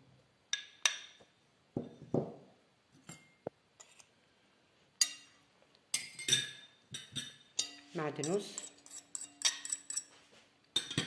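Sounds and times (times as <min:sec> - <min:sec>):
metal spoon clinking on bowls: 0:05.0 - 0:11.0.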